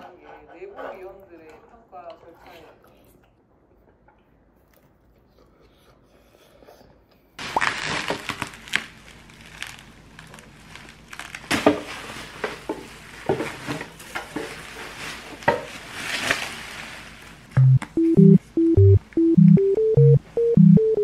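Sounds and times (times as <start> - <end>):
bubble wrap crinkling: 7.4 - 17.6.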